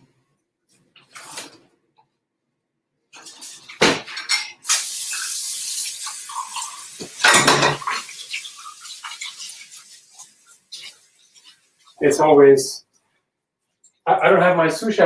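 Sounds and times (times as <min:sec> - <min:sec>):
tap running water: 0:03.2 - 0:12.1
loud clunk of pots or dishes: 0:07.2 - 0:08.0.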